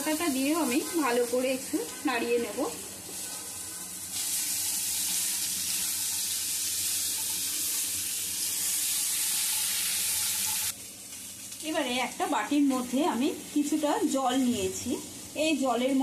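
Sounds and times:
vegetables sizzling in hot oil: 0.0 - 16.0.

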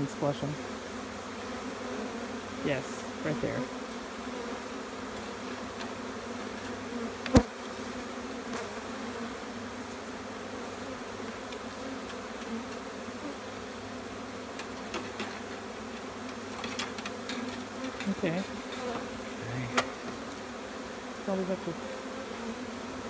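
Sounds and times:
bees buzzing: 0.0 - 23.0.

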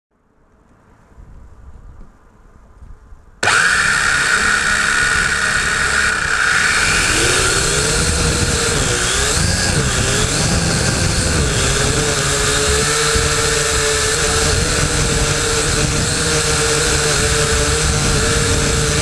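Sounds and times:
quadcopter motors whining: 3.4 - 19.0.

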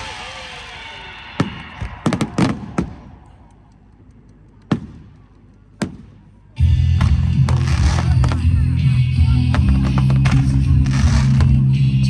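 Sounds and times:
fireworks bangs: 1.3 - 3.2, 4.7 - 5.2, 7.0 - 8.5, 9.6 - 11.6.

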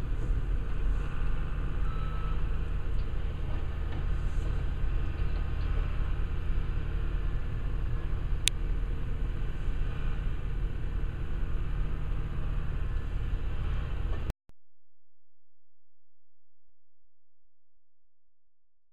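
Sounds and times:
diesel engine running: 0.0 - 14.3.

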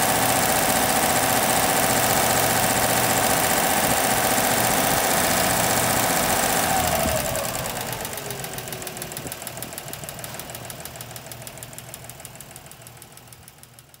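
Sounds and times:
engine idling with ticking: 0.0 - 14.0.

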